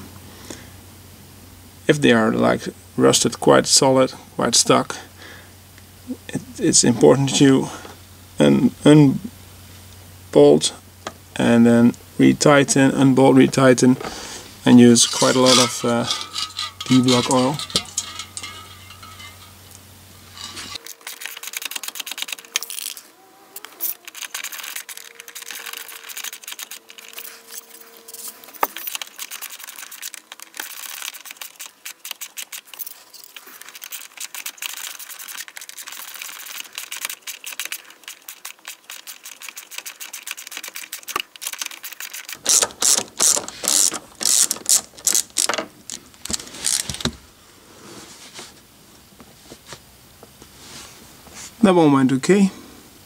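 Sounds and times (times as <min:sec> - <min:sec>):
hand ratchet clicking: 0:33.8 - 0:46.0.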